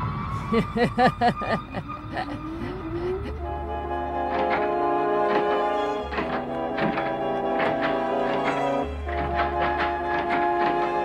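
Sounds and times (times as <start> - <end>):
music of held chords: 3.4 - 11.0
short knocks: 4.3 - 11.0.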